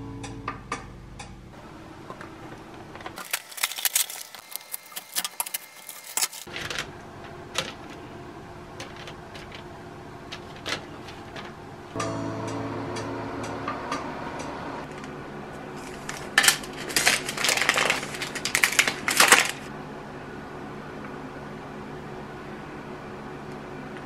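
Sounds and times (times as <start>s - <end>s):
background music: 0.0s - 1.5s, 12.0s - 16.2s.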